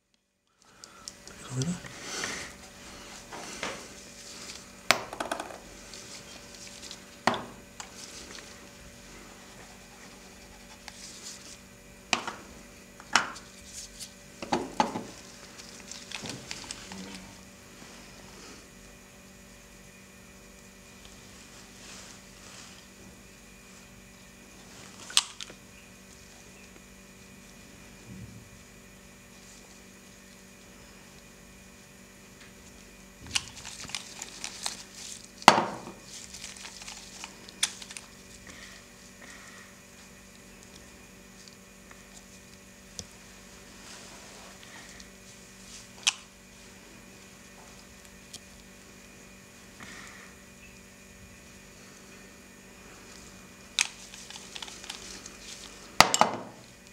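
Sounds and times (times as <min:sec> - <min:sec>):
rustling and light clicks: 0:53.1 - 0:55.8.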